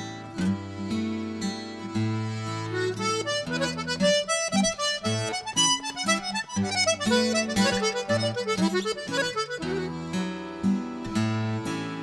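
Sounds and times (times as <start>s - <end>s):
button accordion playing folk tune: 0.0s - 12.0s.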